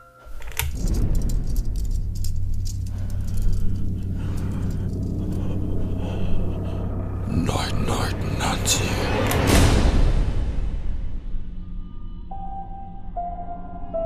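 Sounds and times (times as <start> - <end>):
rattling and crackling: 0.1 - 9.6
loud low hum: 0.3 - 12.4.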